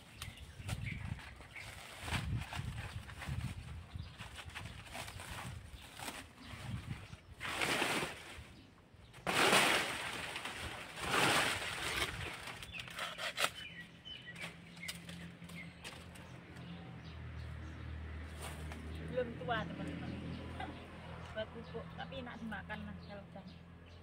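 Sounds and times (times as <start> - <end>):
dry leaves rustling: 0.0 - 16.5.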